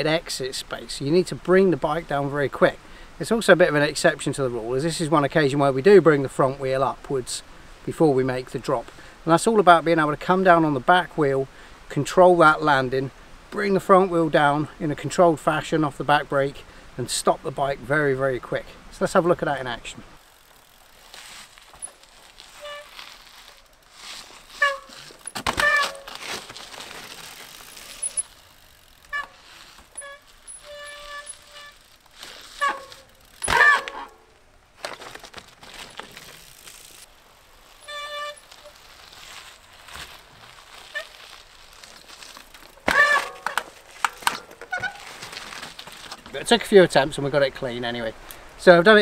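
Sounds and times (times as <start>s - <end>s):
bike rolling over gravel: 17.1s - 48.1s
bike landing scrape and thud: 20.4s - 37.0s, 37.8s - 46.4s
brake squeals: 20.5s - 26.3s, 27.4s - 34.1s, 37.7s - 43.6s.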